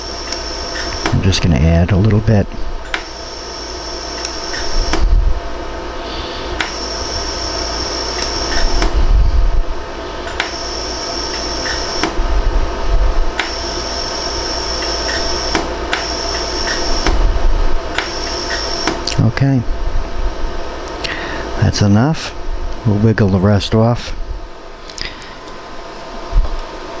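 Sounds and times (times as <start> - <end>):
high steady whine: 0.0 - 27.0
laser welder clicks: 0.2 - 1.2, 2.8 - 3.2, 4.1 - 5.1, 6.6 - 6.8, 8.1 - 9.0, 10.3 - 12.2, 13.3 - 13.8, 14.8 - 17.2, 17.9 - 19.2.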